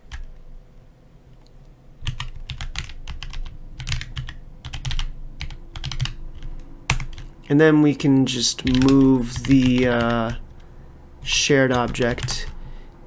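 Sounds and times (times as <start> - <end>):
typing on computer keyboard: 0.0 - 0.3, 2.0 - 7.3, 8.6 - 12.6.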